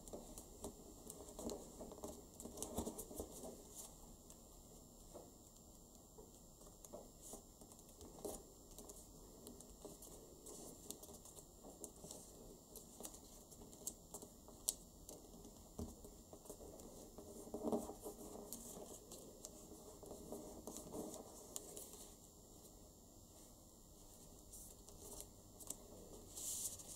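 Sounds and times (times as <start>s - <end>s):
paper being folded: 16.3s - 22.2s, 24.0s - 26.9s.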